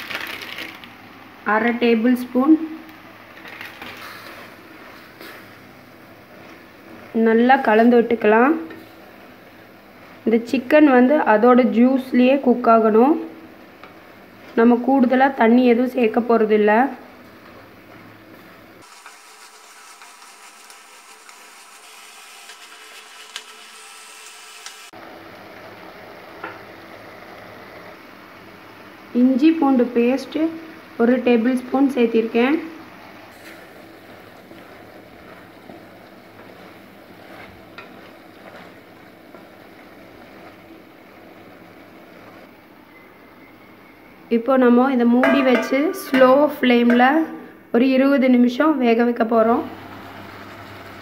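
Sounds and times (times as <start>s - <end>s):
chicken frying in oil: 18.8s - 25.0s
spatula scraping pan: 18.9s - 24.9s, 36.4s - 39.5s.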